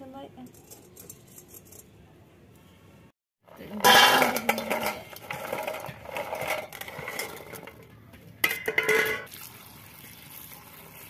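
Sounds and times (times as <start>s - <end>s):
dried fruits rattling in steel bowl: 0.4s - 1.9s, 3.5s - 9.3s
metal plate clattering down: 3.7s - 7.8s, 8.4s - 9.3s.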